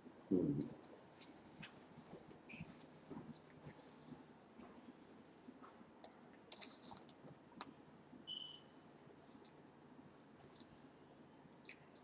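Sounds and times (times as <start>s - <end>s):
paper wrappers crinkling: 6.5s - 7.4s.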